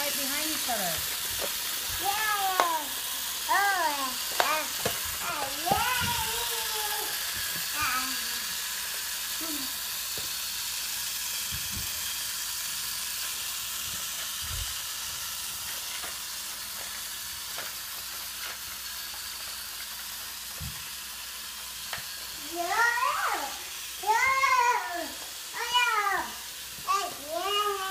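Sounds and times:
toy train motor whirring: 0.0s - 27.9s.

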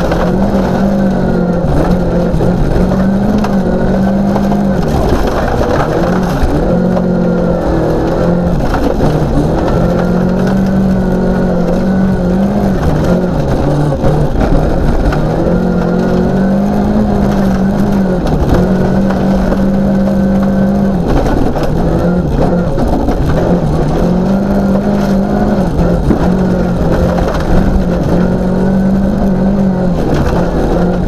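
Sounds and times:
car engine revving: 0.0s - 31.0s
gravel and road noise: 0.0s - 31.0s.

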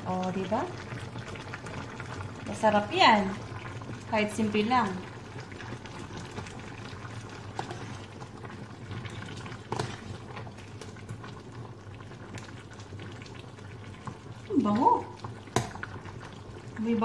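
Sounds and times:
stew bubbling in saucepan: 0.0s - 17.0s.

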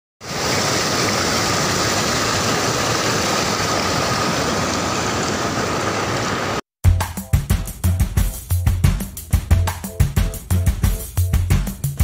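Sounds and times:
water rushing over rocks: 0.2s - 6.6s.

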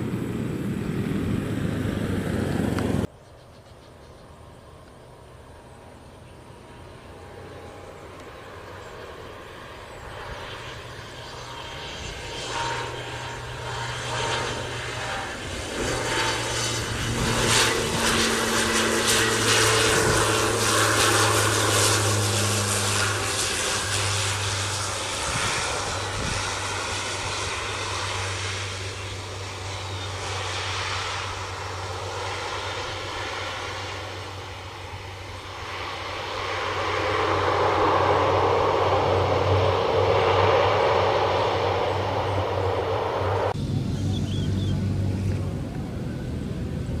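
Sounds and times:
turboprop propeller drone: 0.0s - 47.0s.

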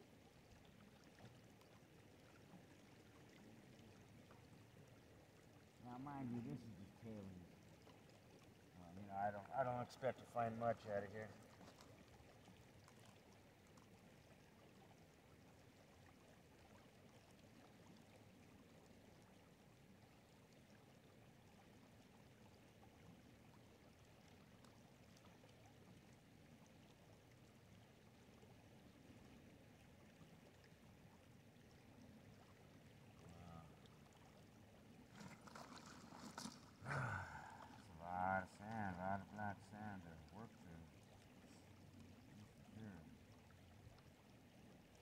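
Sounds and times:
shallow river flowing: 0.0s - 45.0s
water swishing in plastic pan: 35.1s - 36.9s.

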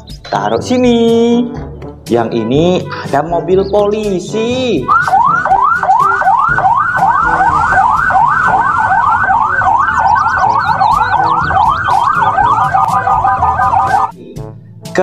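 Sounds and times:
toy police siren yelping: 4.9s - 14.1s.

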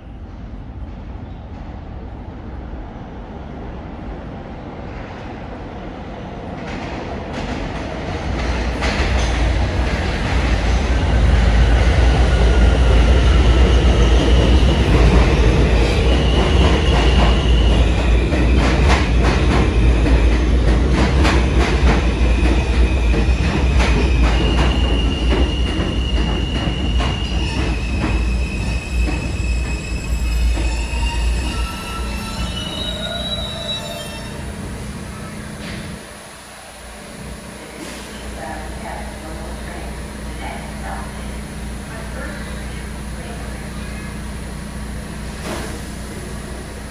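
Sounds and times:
subway train rumble: 0.0s - 46.9s
high-pitched brake squeals: 24.6s - 34.5s.

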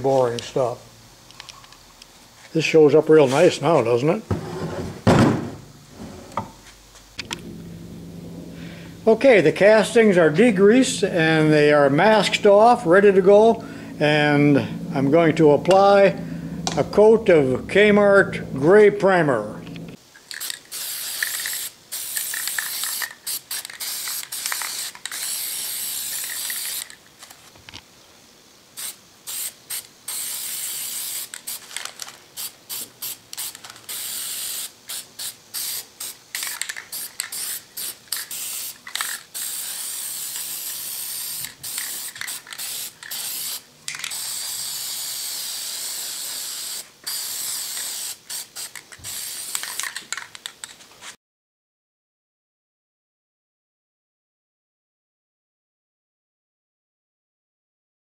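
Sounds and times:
aerosol spray can hissing: 20.2s - 27.0s, 28.7s - 50.0s.

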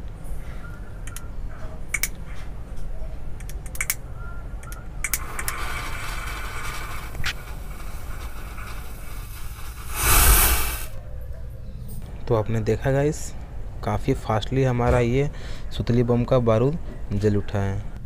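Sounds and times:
firecracker powder fizzing: 5.2s - 11.0s
loud rush of noise: 9.8s - 11.0s.

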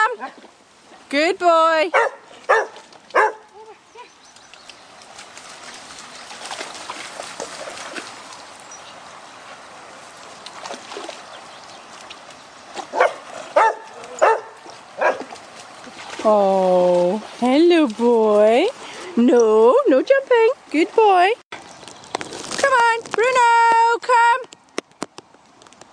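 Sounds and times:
stream water splashing: 0.0s - 25.6s
dog barking: 1.9s - 3.5s, 12.9s - 15.3s.

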